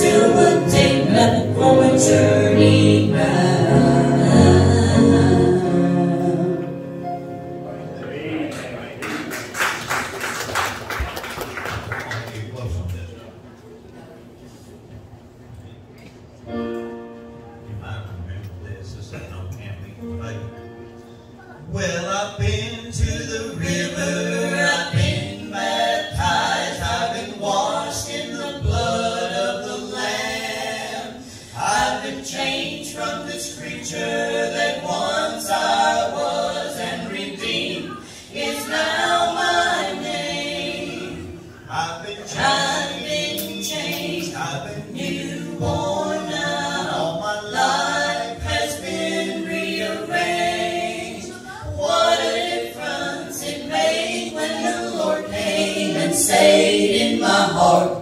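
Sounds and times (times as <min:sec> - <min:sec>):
group singing gospel in harmony: 0:00.0 - 0:08.0, 0:21.7 - 0:58.0.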